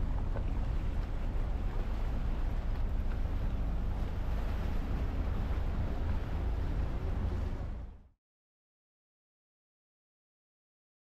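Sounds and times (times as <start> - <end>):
rushing water: 0.0 - 8.1
wind on microphone: 0.0 - 8.1
motorboat engine rumble: 0.0 - 8.2.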